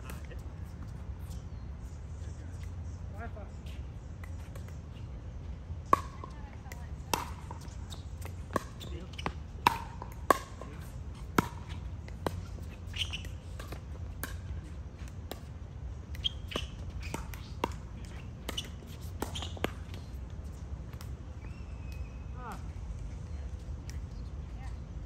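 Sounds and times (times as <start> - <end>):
shoes squeaking: 7.2 - 22.2.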